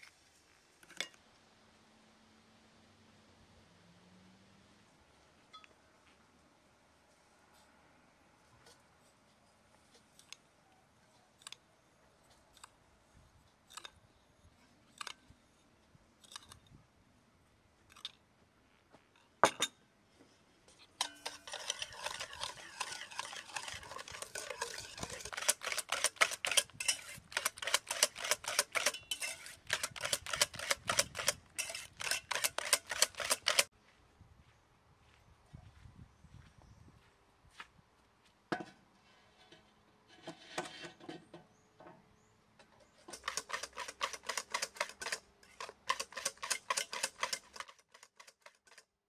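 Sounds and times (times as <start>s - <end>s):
whisk rattling against metal bowl: 21.0s - 33.7s, 43.1s - 48.8s.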